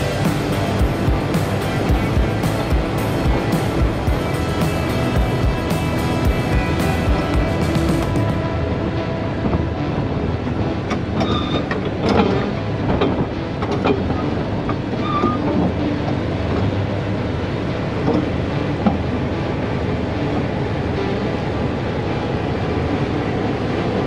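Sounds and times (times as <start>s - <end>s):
bulldozer diesel engine running: 0.0s - 24.0s
track links clanking and squeaking: 10.9s - 16.6s.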